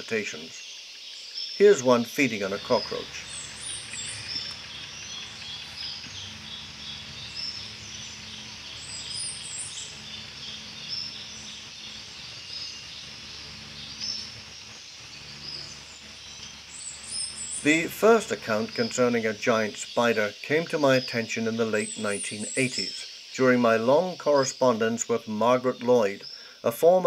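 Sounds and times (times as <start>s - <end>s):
insects chirping: 0.0s - 27.0s
low steady hum: 1.8s - 20.2s.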